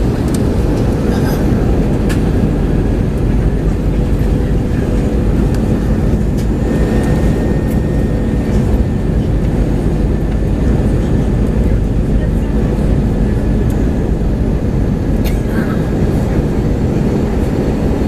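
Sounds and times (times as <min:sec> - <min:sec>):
aircraft cabin engine roar: 0:00.0 - 0:18.0.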